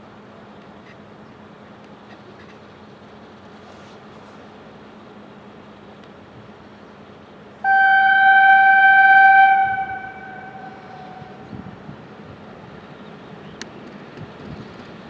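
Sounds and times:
low rumble of railcar: 0.0s - 15.0s
railcar horn blast: 7.6s - 11.8s.

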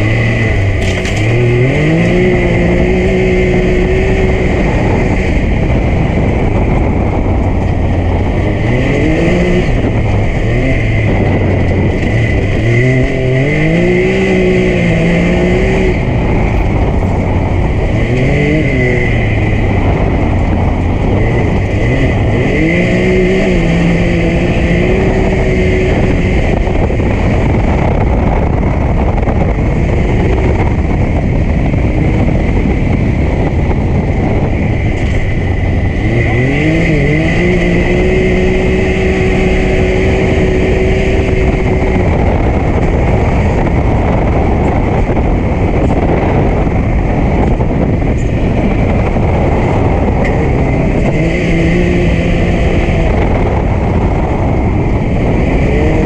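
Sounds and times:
engine revving: 0.0s - 56.0s.

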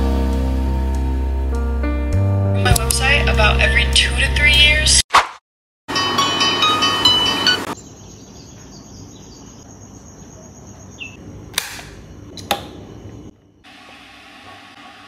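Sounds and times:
smartphone alarm tone: 5.9s - 7.8s.

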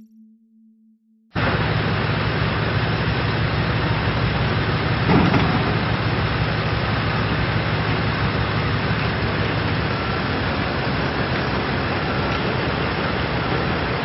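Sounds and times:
excavator diesel engine running: 1.4s - 14.0s.

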